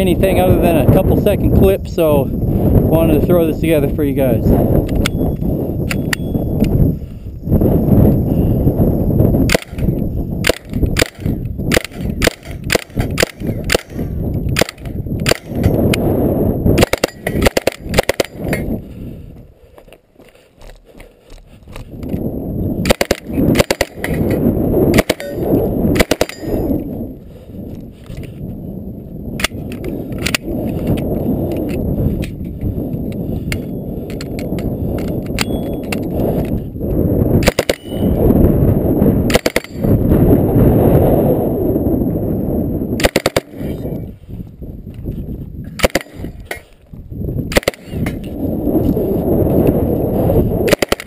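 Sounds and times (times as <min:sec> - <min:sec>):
submachine gun firing: 0:10.4 - 0:15.7, 0:16.8 - 0:18.5, 0:22.8 - 0:24.2, 0:25.0 - 0:26.5, 0:43.0 - 0:43.6, 0:45.8 - 0:46.3.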